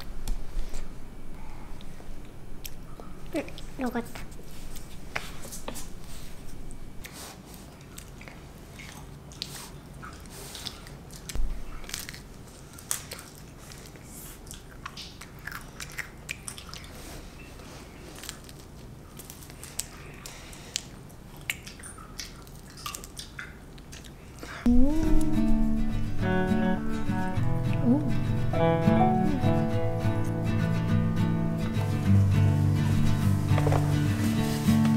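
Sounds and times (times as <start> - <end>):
child crunching ice cream cone: 7.8 - 17.0, 18.0 - 21.6.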